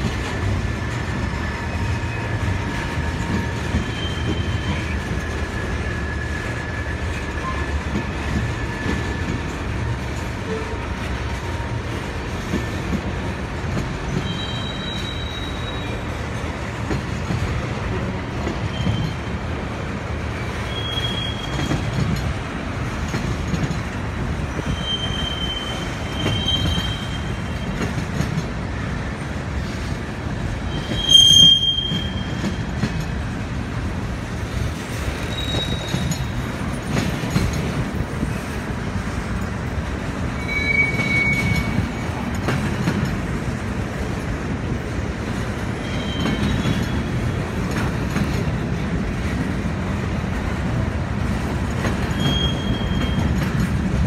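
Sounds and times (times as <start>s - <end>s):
train wheels rumbling on rail: 0.0s - 54.0s
high-pitched wheel squeals: 3.8s - 5.0s, 14.1s - 16.1s, 20.4s - 21.9s, 24.5s - 27.8s, 30.7s - 32.5s, 35.2s - 36.3s, 40.4s - 42.0s, 45.8s - 47.1s, 52.0s - 53.5s.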